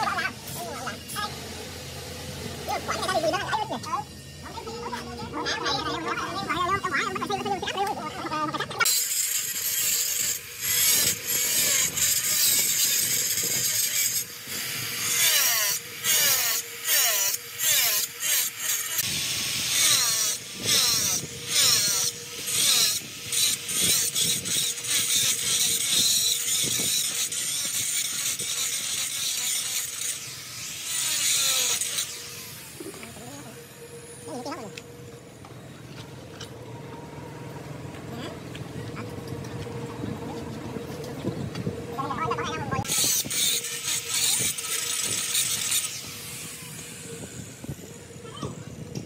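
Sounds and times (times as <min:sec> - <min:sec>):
angle grinder grinding stone: 0:08.7 - 0:35.4, 0:42.3 - 0:47.8.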